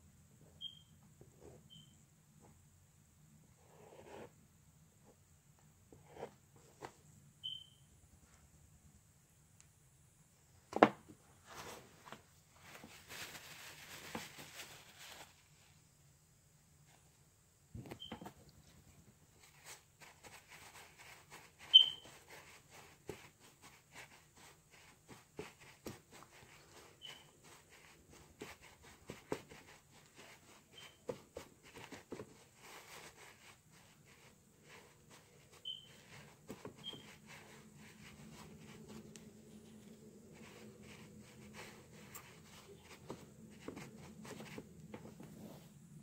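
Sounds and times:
short high chirps: 7.4s - 7.9s, 21.7s - 22.0s
faint low hum: 24.1s - 46.0s.

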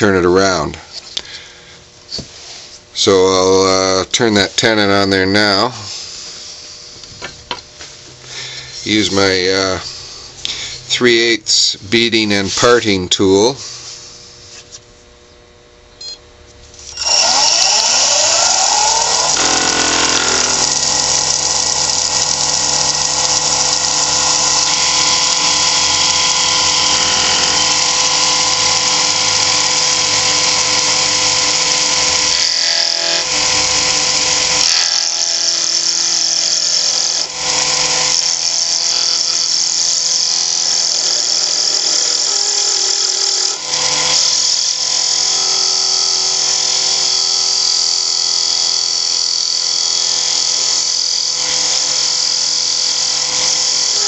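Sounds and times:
tool cutting wood: 16.8s - 54.0s
wood lathe motor whine: 16.8s - 54.0s.

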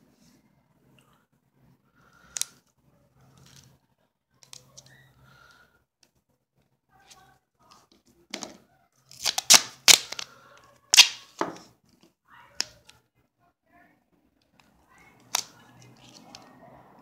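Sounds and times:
tape handling: 7.7s - 13.0s
duct tape ripping: 9.1s - 10.3s, 10.9s - 11.3s
tape snapping: 9.1s - 10.3s, 10.9s - 11.6s.

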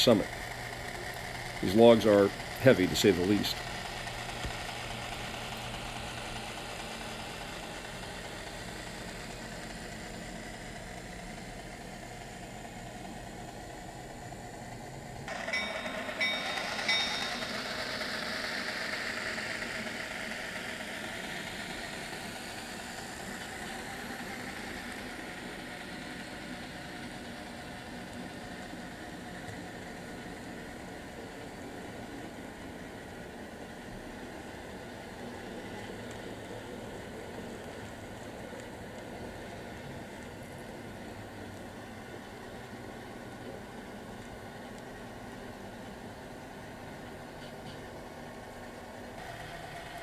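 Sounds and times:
model train running: 0.0s - 50.0s
short high tones: 15.3s - 18.1s.

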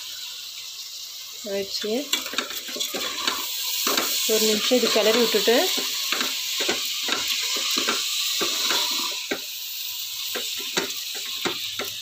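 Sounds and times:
rice and lentils sizzling in oil: 0.0s - 12.0s
ladle scraping and knocking pan: 2.1s - 9.4s, 10.3s - 12.0s.

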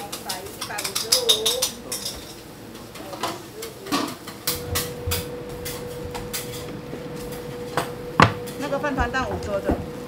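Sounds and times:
metal cookware clinking: 0.0s - 2.4s
steady hum: 4.3s - 10.0s.

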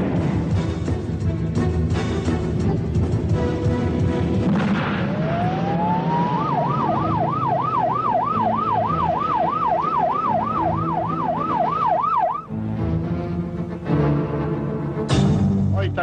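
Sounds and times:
low background music: 0.0s - 16.0s
police siren yelping: 5.0s - 12.5s.

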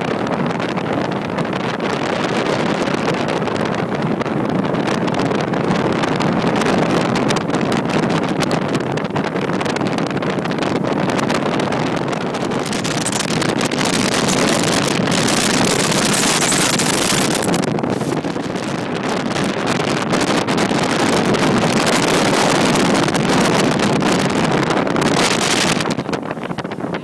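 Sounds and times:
boat engine: 0.0s - 27.0s
wind rushing over microphone: 0.0s - 27.0s
rushing water: 11.2s - 27.0s.

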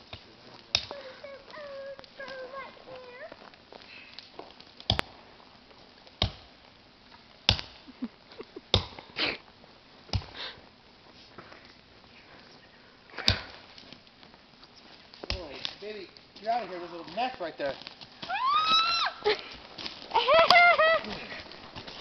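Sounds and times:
axe chopping tree trunk: 0.1s - 0.9s, 4.8s - 5.1s, 6.2s - 6.5s, 7.5s - 7.8s, 8.7s - 9.0s, 10.1s - 10.4s, 13.2s - 13.6s, 15.2s - 15.8s.

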